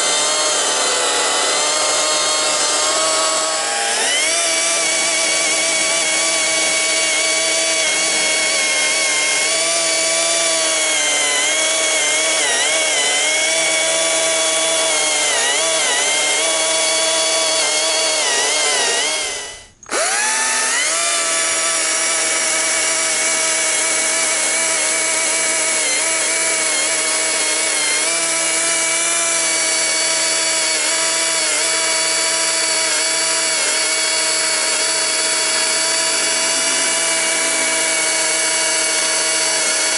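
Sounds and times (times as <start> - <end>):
chainsaw cutting log: 0.0 - 39.9.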